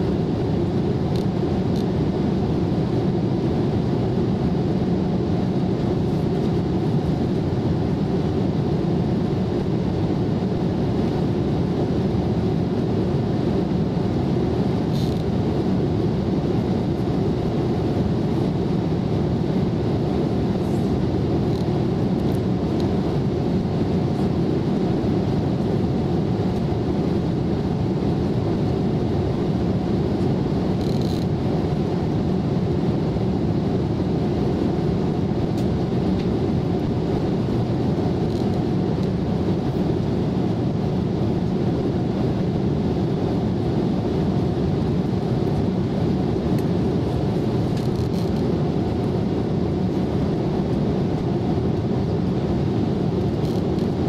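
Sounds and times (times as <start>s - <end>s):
airliner cabin rumble: 0.0s - 54.0s.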